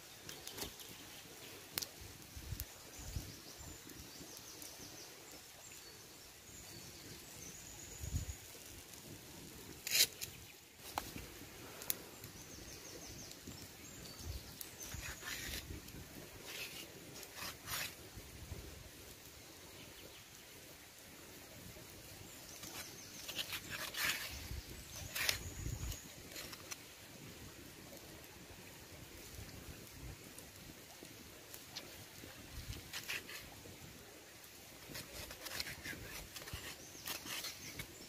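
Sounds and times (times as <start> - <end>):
knife scraping on stone: 9.8 - 10.4, 14.8 - 15.7, 16.4 - 18.0, 22.6 - 26.7, 34.8 - 38.0.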